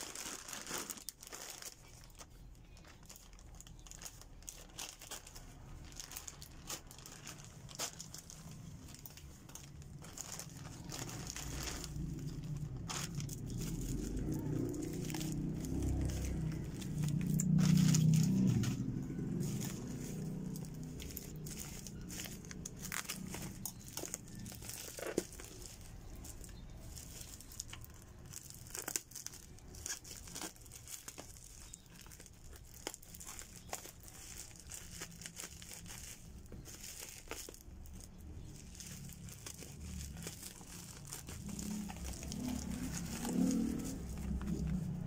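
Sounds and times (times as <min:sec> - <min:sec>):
bubble wrap crinkling: 0:00.0 - 0:45.0.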